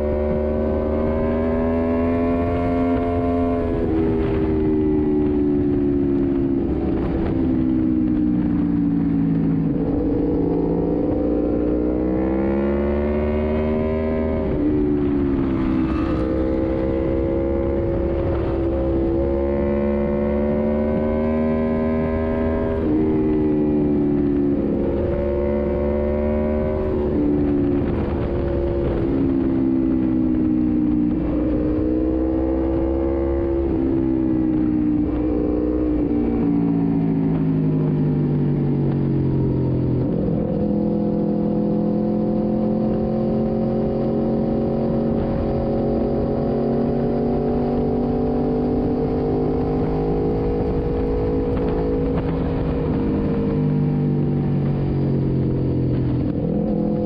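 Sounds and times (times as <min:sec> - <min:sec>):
motorcycle engine running: 0:00.0 - 0:57.0
wind rush: 0:02.7 - 0:21.0, 0:21.6 - 0:57.0.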